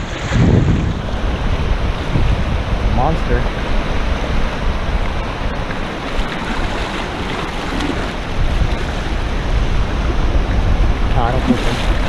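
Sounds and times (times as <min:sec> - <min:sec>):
heavy low rumble: 0:00.0 - 0:05.7, 0:08.2 - 0:12.0
surf washing onto beach: 0:00.0 - 0:12.0
wind buffeting microphone: 0:00.0 - 0:12.0.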